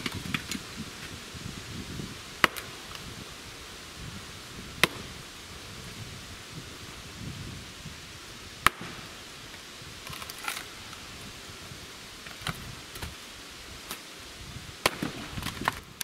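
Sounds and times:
axe chopping wood: 2.4 - 2.7, 4.8 - 5.1.

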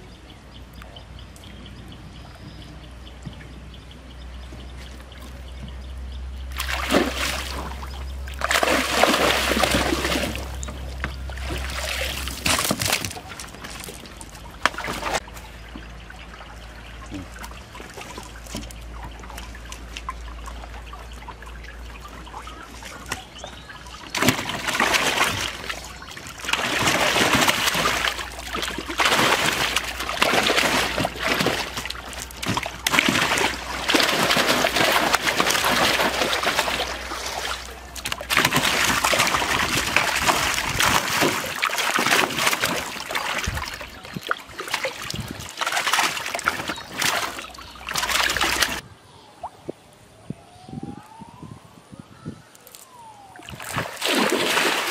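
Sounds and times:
fish thrashing and splashing: 6.5 - 15.5, 17.2 - 48.8, 53.4 - 54.9.

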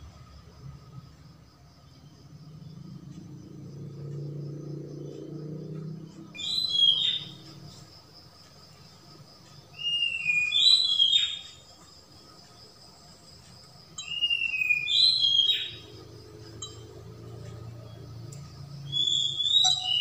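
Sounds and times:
bird whistling two-note call: 19.1 - 20.0.

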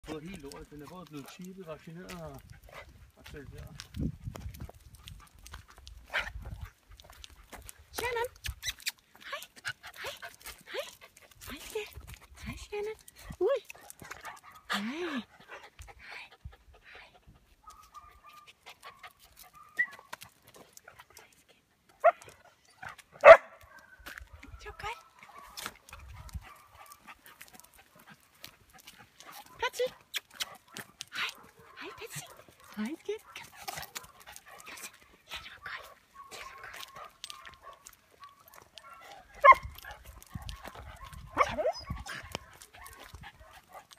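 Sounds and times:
dog yipping: 17.7 - 20.2, 23.2 - 24.0, 36.2 - 39.7, 40.4 - 43.1.

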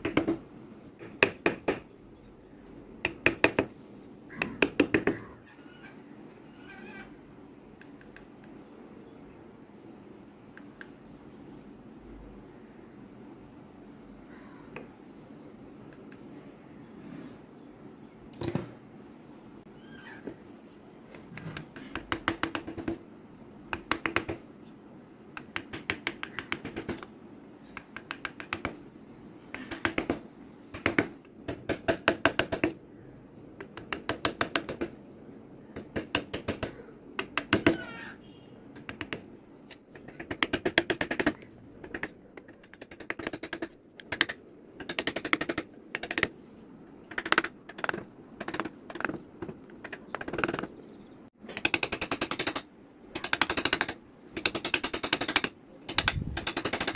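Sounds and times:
carving chisel tapping wood: 4.4 - 5.2, 23.7 - 24.4, 25.4 - 27.0, 27.8 - 28.8, 38.8 - 39.2.

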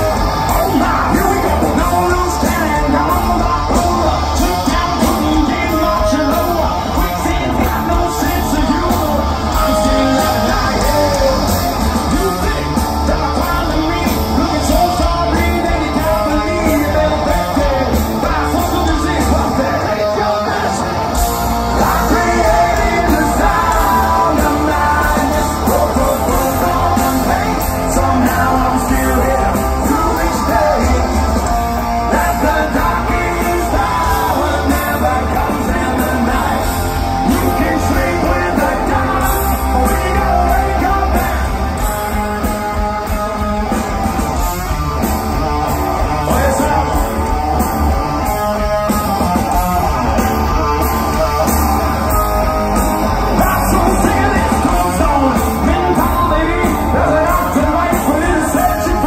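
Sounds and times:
bass: 0.0 - 59.0
distorted electric guitars: 0.0 - 59.0
drums: 0.0 - 59.0
person singing: 0.0 - 59.0.

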